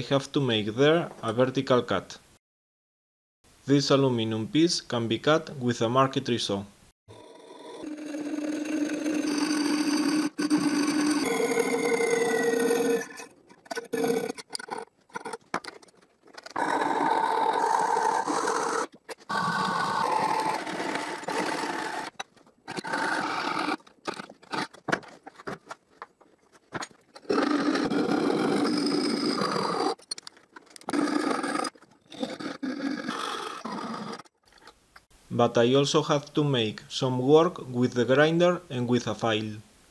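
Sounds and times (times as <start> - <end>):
saw rasping through metal sheet: 7.8 - 15.4.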